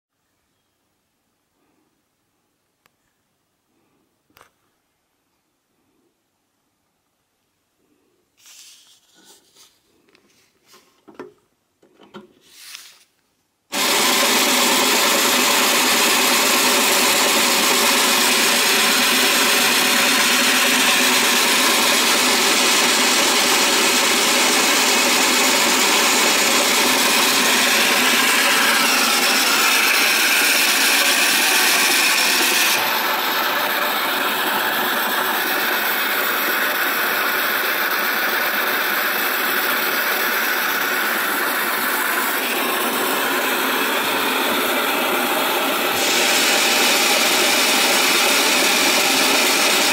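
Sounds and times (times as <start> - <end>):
toy projector whirring: 13.7 - 49.9.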